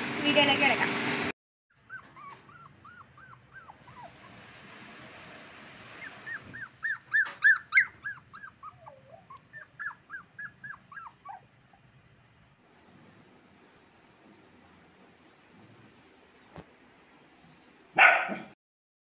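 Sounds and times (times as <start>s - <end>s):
puppy whimpering: 1.7s - 4.8s, 6.0s - 11.9s.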